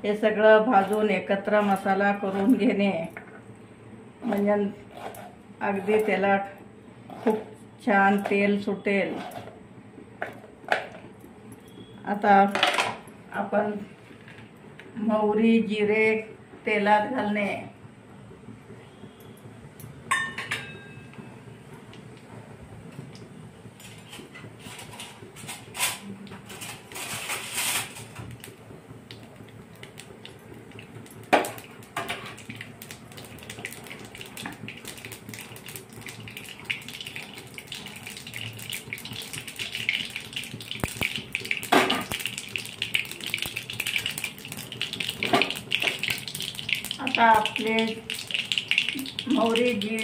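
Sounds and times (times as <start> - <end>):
seeds sizzling in hot oil: 27.0 - 50.0.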